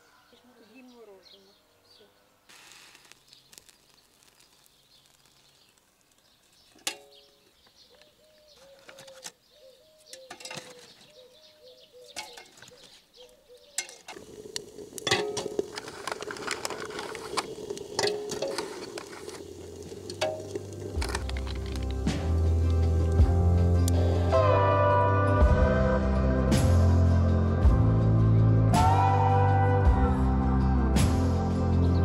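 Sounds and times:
fire crackling: 2.5 - 7.4, 13.8 - 24.4
bird calling: 6.7 - 14.2.

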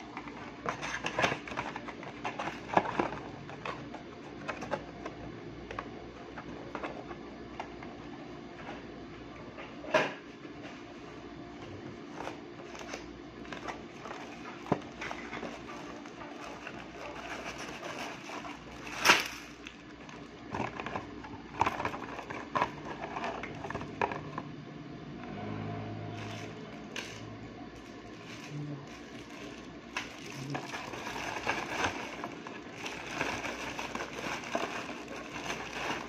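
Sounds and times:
packaging clicks and knocks: 0.0 - 4.8, 12.7 - 24.4, 26.2 - 36.0
faint steady hum: 0.0 - 36.0.

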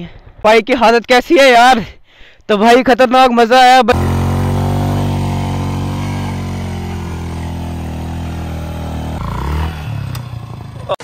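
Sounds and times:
motorcycle engine running: 3.9 - 11.0.

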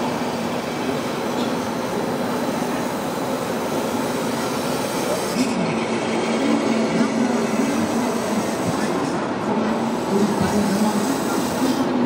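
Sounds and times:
crowd din in indoor hall: 0.0 - 12.0.

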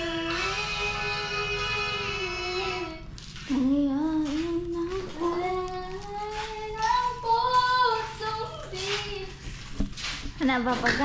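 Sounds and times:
child singing: 0.0 - 9.4.

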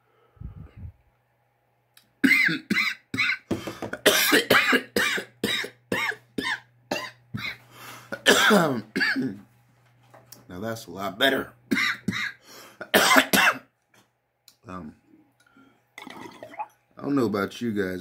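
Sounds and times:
man coughing: 2.2 - 7.6, 8.2 - 9.4, 11.3 - 13.6.

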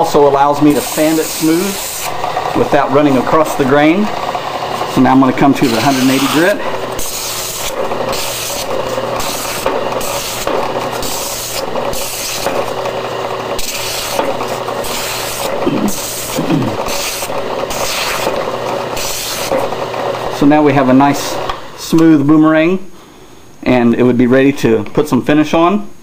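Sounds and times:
drum sander humming: 0.0 - 22.4
scratchy sanding rasp: 0.6 - 3.5, 4.2 - 19.8.

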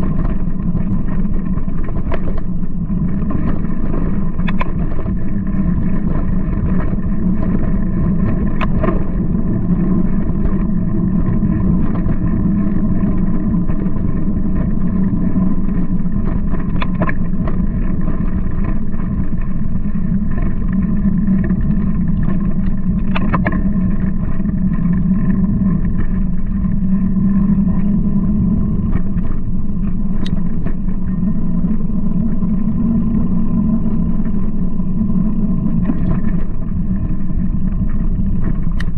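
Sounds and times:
bicycle tyre and frame noise: 0.0 - 38.9
wind on microphone: 0.0 - 38.9.

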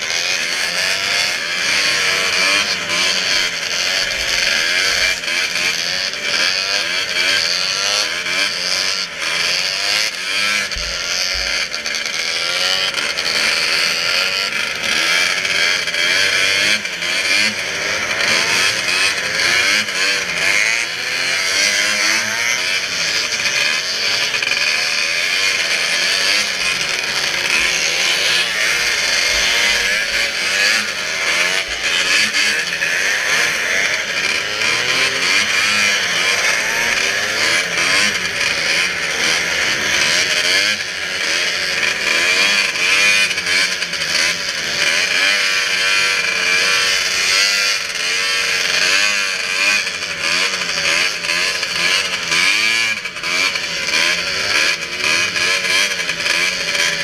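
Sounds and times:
snowmobile engine racing: 0.0 - 57.0.

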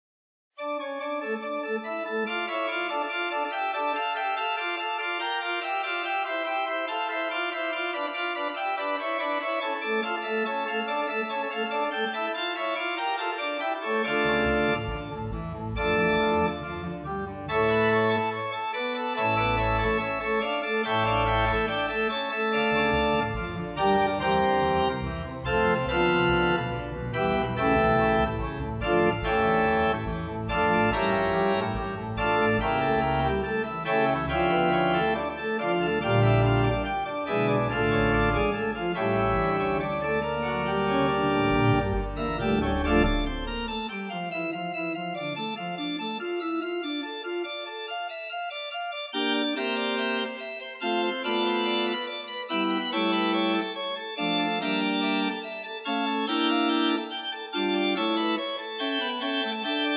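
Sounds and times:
organ chords: 0.6 - 59.9
deep organ bass notes: 14.0 - 18.5, 19.4 - 47.4.

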